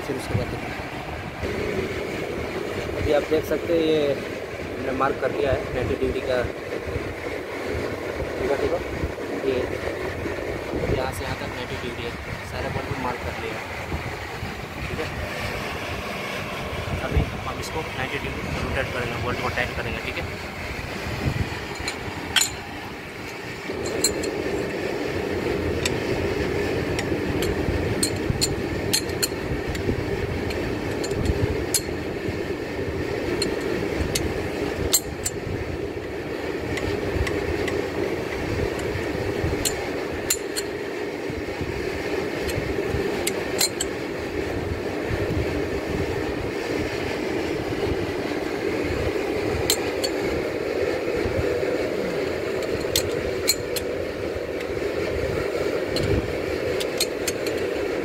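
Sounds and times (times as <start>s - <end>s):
steady low hum: 0.0s - 58.0s
wrench clinking on bolts: 21.7s - 22.7s, 23.8s - 24.4s, 27.4s - 29.4s, 34.9s - 35.4s, 43.2s - 43.9s, 56.8s - 57.7s.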